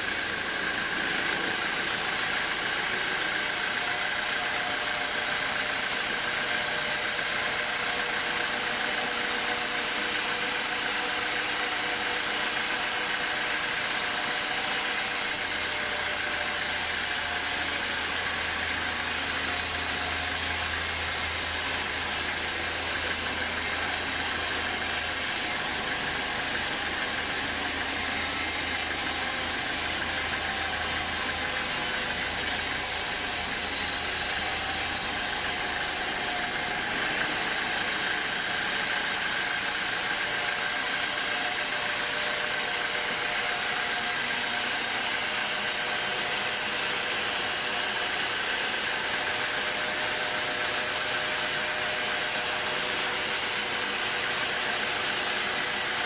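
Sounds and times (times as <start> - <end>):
band saw cutting log: 0.0 - 1.0, 15.2 - 43.3.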